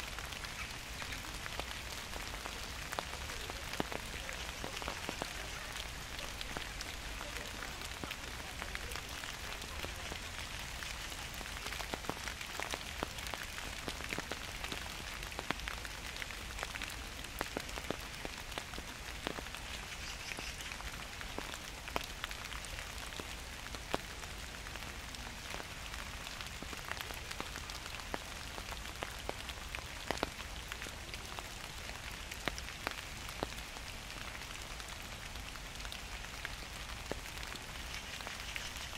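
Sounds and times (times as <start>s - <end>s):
gentle rain falling: 0.0s - 38.9s
raindrops ticking on surfaces: 0.0s - 38.9s.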